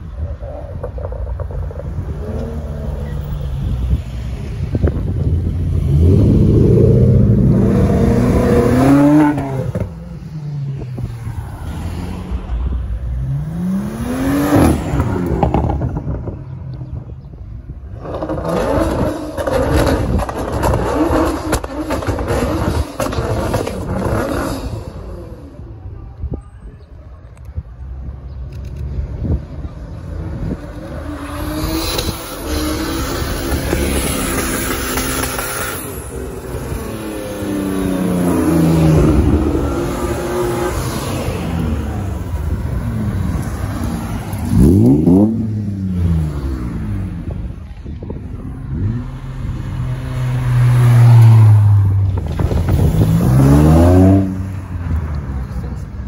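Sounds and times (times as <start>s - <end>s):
another car engine: 27.3s - 56.0s.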